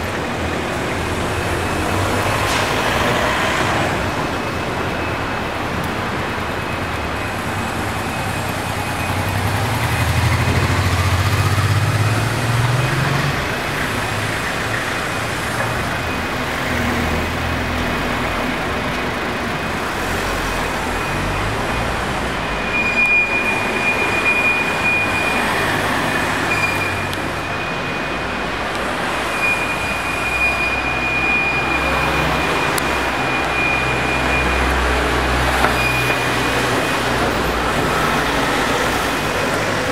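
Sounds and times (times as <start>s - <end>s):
road traffic: 0.0s - 39.9s
vehicle engine rumble passing: 7.1s - 22.6s.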